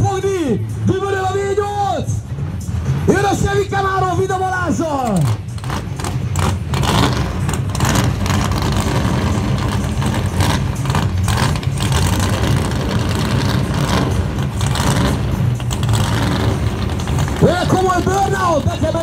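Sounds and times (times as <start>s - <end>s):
car engine rumbling at idle: 0.0s - 19.0s.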